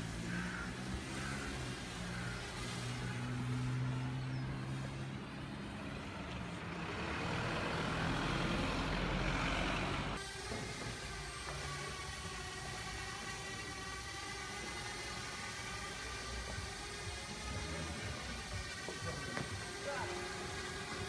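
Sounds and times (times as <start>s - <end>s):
car passing: 0.0s - 10.2s
large vehicle engine humming: 0.0s - 21.0s.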